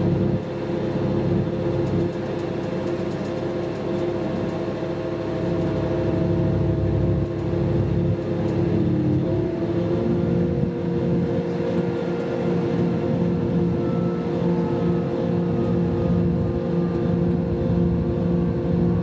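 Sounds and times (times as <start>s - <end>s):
diesel engine drone: 0.0s - 19.0s
rumble of train running gear: 0.0s - 19.0s
whining tones: 8.8s - 19.0s.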